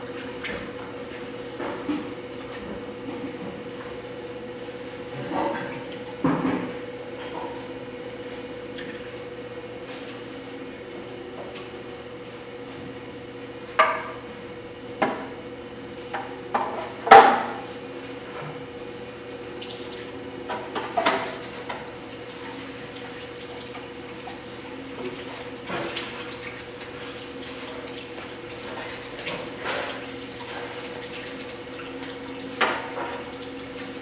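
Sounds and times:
wet clay and water splashes: 21.2s - 34.0s.

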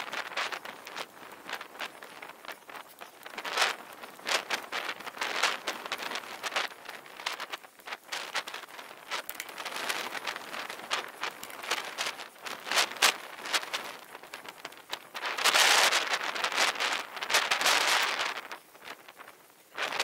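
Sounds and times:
rushing of tyres and wind: 0.0s - 20.0s
bicycle rattling and knocking: 0.1s - 15.4s.

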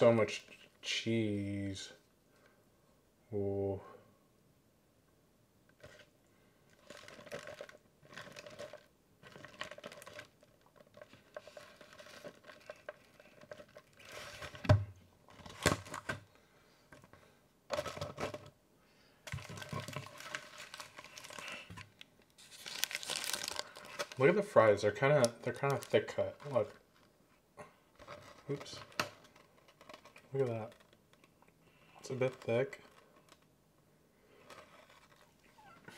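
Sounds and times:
paper wrapper crinkling: 6.7s - 14.6s, 19.2s - 27.1s, 28.0s - 33.5s, 34.4s - 35.8s.

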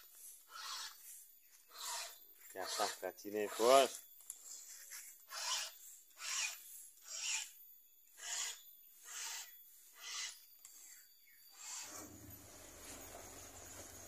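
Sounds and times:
hand file rasping on chain: 0.5s - 1.1s, 1.7s - 7.5s, 8.2s - 10.5s.

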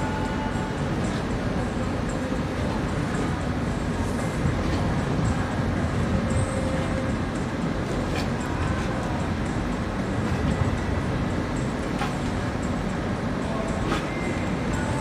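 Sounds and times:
harbour low rumble: 0.0s - 15.0s.

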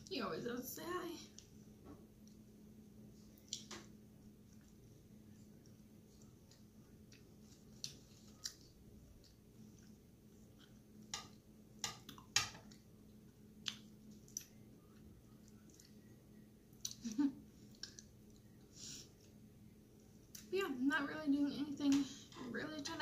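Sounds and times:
soft chewing: 3.1s - 20.5s.

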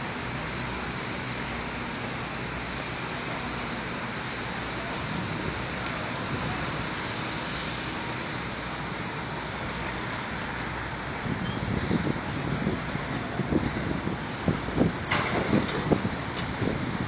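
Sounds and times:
wind on microphone: 11.2s - 17.0s.

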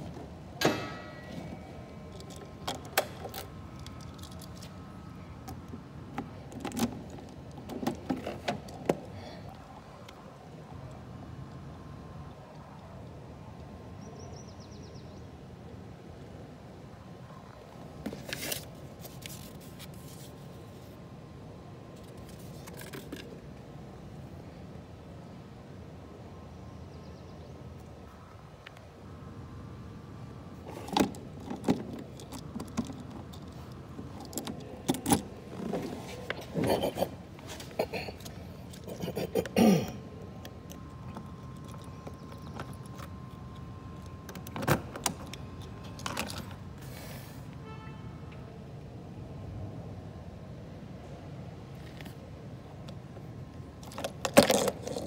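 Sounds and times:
paper card rustling and scraping: 18.1s - 21.0s.

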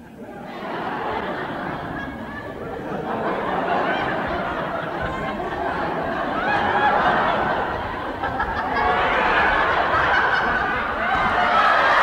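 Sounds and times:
group of people laughing: 0.2s - 12.0s.

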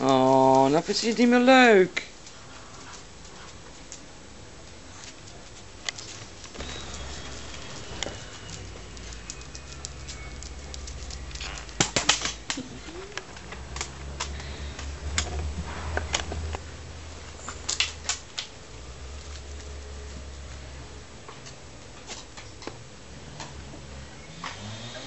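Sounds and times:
low rumble: 6.4s - 17.6s
sharp clicks and taps: 8.0s - 16.3s.

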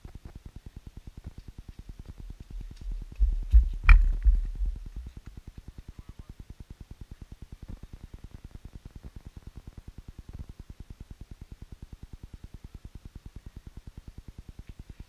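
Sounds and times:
footsteps on dirt path: 2.0s - 5.2s.

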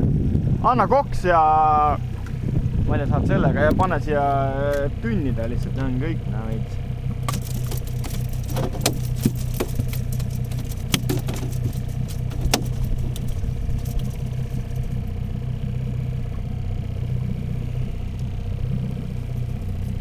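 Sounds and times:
outboard motor humming: 0.0s - 20.0s.

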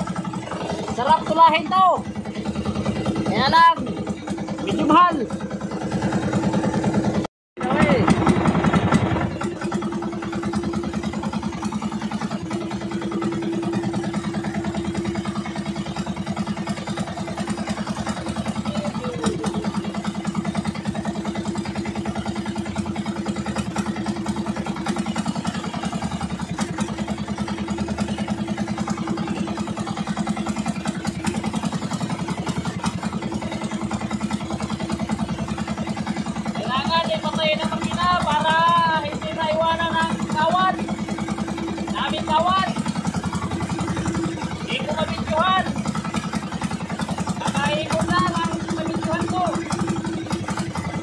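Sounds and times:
boat engine running: 0.0s - 51.0s.

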